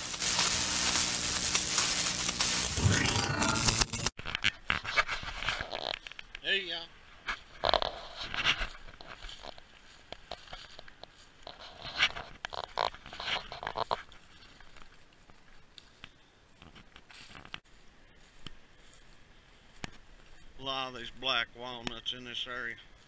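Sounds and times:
footsteps in dry leaves: 7.4s - 12.4s, 17.0s - 20.6s.

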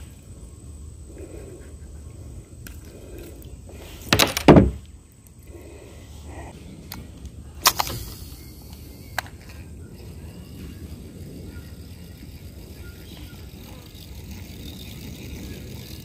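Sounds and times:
sharp click: 7.6s - 8.4s.

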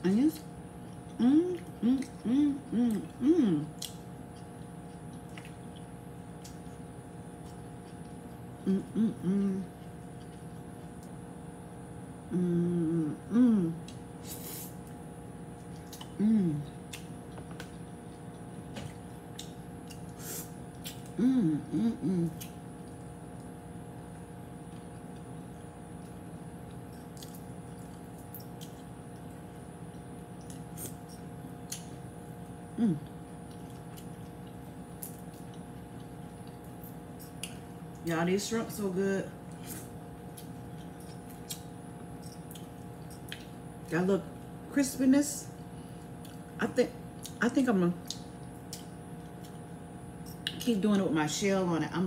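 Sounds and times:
steady low hum: 0.0s - 52.0s
woman humming mmm: 1.1s - 3.9s, 8.6s - 9.8s, 12.3s - 14.6s, 16.0s - 16.8s, 20.2s - 22.6s, 32.7s - 33.2s.

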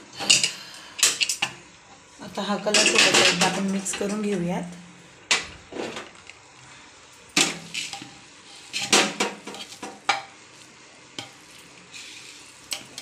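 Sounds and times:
metal spoon scraping a pot: 7.6s - 9.9s.

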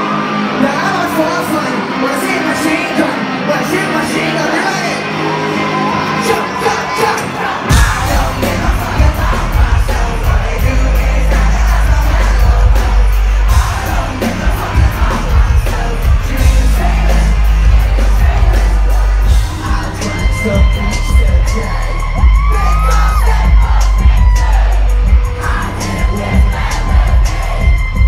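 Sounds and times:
crowd yelling along: 0.0s - 28.0s
live rock band: 0.0s - 28.0s
person singing: 6.1s - 28.0s
drums crashing: 7.2s - 28.0s.

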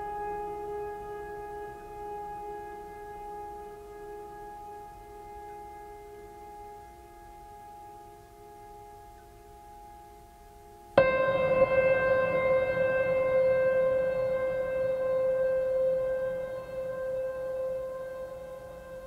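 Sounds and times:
sustained music chord: 11.0s - 19.0s.

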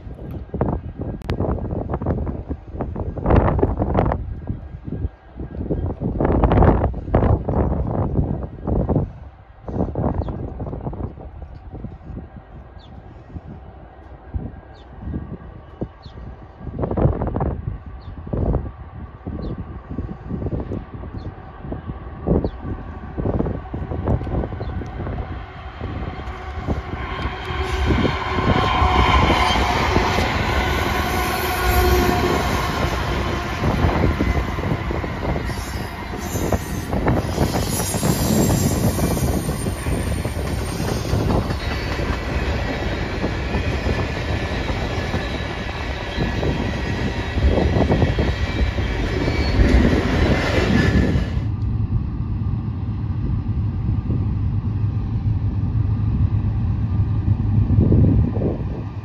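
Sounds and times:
low train rumble: 0.0s - 59.0s
wheel squeal: 35.5s - 42.0s, 48.5s - 51.3s.

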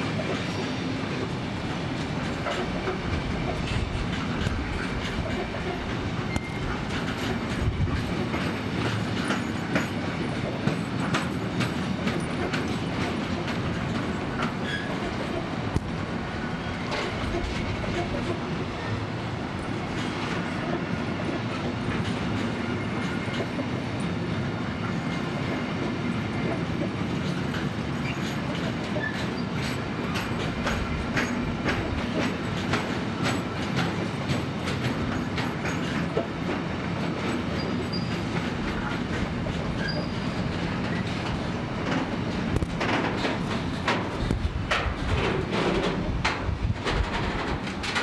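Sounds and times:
freight train rolling past: 0.0s - 48.0s
wheels clicking over rail joints: 1.6s - 18.9s, 26.4s - 48.0s.

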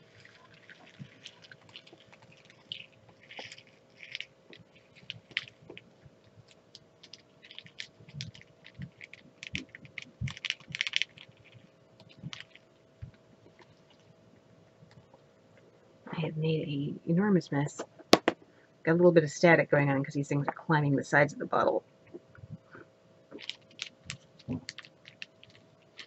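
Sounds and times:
resin beads rattling into bottle: 23.4s - 26.0s.

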